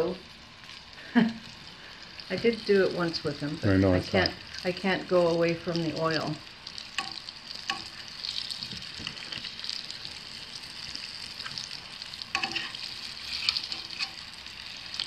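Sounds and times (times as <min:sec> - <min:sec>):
dough deep-frying in oil: 0:00.0 - 0:15.0
metal tongs clicking on pot: 0:06.9 - 0:07.9, 0:12.3 - 0:12.8.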